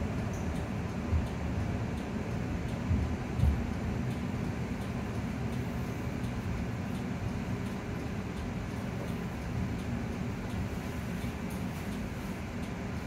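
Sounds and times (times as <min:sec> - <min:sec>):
tram interior rumble: 0:00.0 - 0:13.0.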